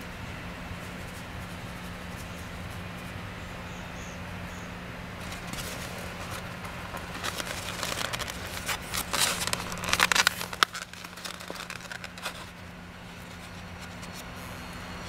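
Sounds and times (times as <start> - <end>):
packaging rustling and crinkling: 5.2 - 14.2.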